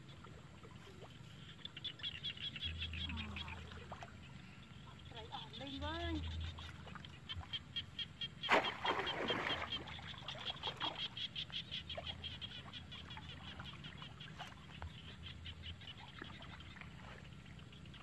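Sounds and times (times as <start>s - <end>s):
water splashing: 8.4s - 11.2s
hands sloshing in water: 8.5s - 11.0s.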